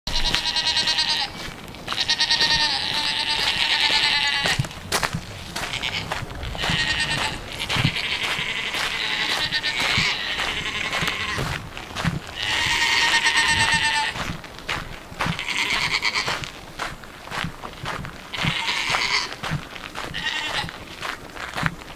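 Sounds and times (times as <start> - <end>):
goats bleating: 0.1 - 14.4, 15.2 - 16.4, 18.3 - 20.8.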